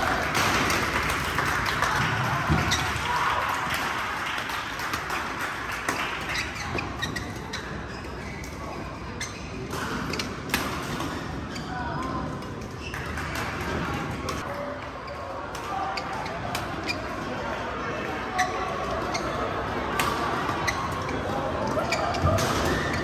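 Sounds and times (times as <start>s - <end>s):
background chatter: 6.1s - 23.0s.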